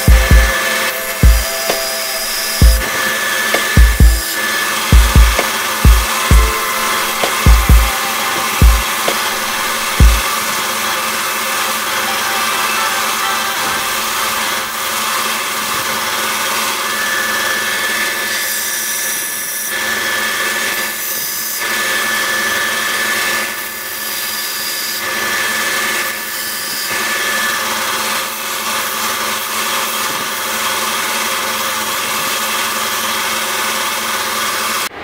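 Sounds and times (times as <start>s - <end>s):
metal grinding on sander belt: 0.0s - 34.9s
belt sander running: 0.0s - 35.0s.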